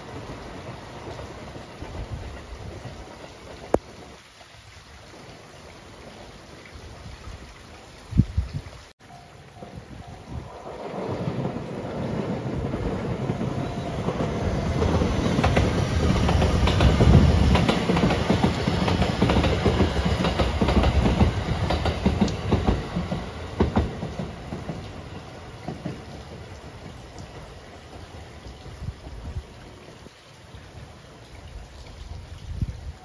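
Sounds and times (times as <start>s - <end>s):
train passing rumble: 0.0s - 4.0s, 9.1s - 29.9s
steady rain: 0.0s - 33.0s
wheels clicking over rail joints: 9.6s - 28.4s.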